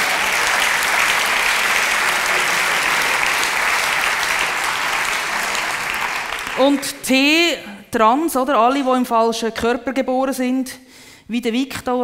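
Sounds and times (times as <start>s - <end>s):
audience applauding: 0.0s - 7.1s.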